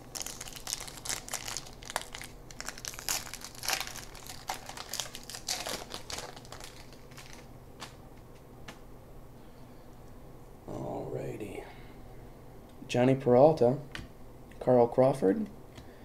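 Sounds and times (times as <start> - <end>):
foil wrapper crinkling and tearing: 0.0 - 8.0.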